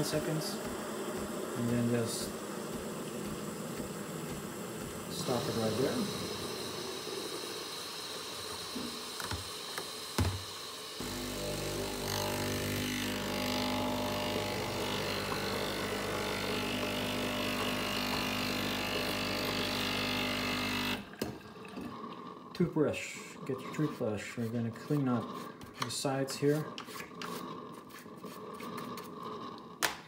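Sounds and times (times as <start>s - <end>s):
espresso machine pump buzzing: 0.0s - 22.4s.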